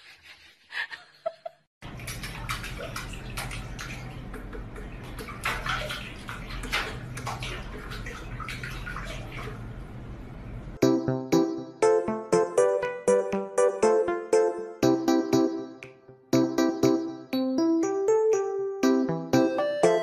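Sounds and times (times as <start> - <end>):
cat splashing in sink water: 1.8 - 10.6.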